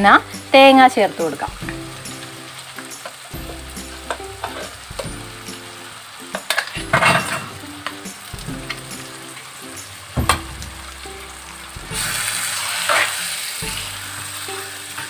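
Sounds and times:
vegetables sizzling in oil: 0.0s - 15.0s
sharp knocks: 10.1s - 11.0s.

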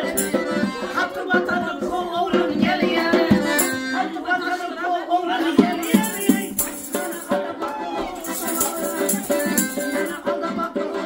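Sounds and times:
tambourine jingles rattling: 0.0s - 0.5s, 3.6s - 3.8s, 5.7s - 7.4s, 8.2s - 10.2s
accordion: 0.0s - 11.0s
woman singing: 0.0s - 11.0s.

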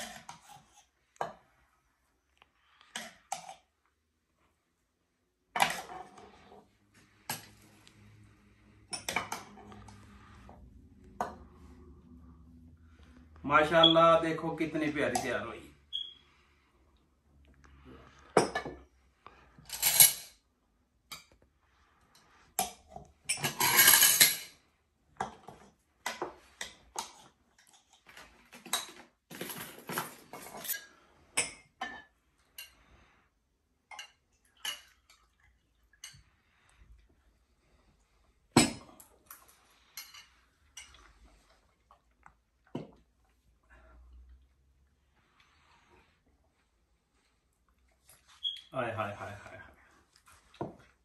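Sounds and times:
metal utensils clinking on pot: 19.6s - 20.4s, 22.6s - 24.6s.

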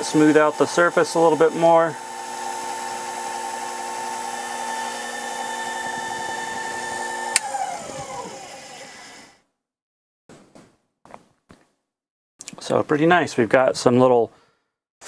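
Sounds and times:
lathe motor whining: 0.0s - 9.4s.

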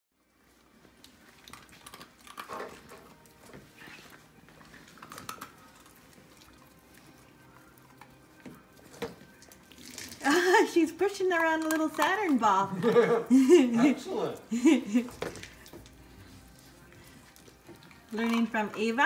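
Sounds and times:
kibble crunching: 0.6s - 10.2s.

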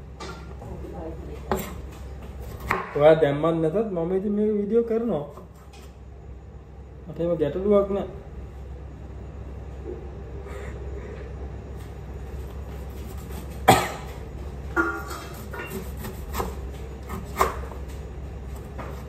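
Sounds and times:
steady low hum: 0.0s - 19.0s
knife chopping on board: 2.5s - 3.0s, 15.4s - 17.7s.

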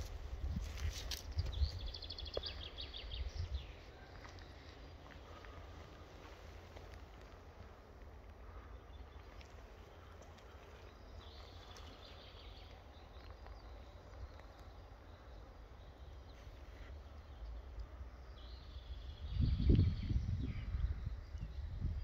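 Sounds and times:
wind rumble on microphone: 0.0s - 3.9s, 18.7s - 22.0s.

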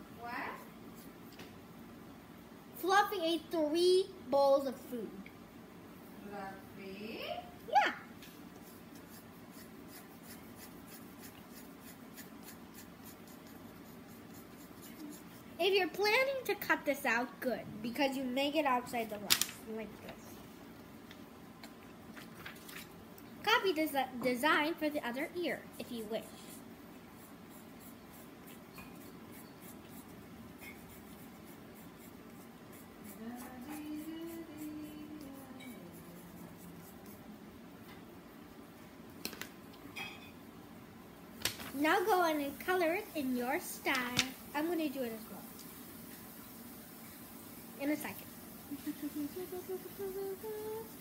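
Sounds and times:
pen scratching on paper: 8.6s - 15.5s, 27.2s - 37.3s
person humming: 33.1s - 36.2s, 48.7s - 51.0s.

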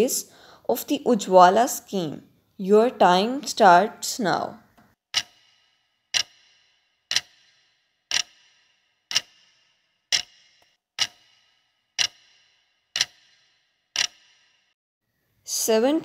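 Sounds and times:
clock ticking: 5.1s - 14.6s.

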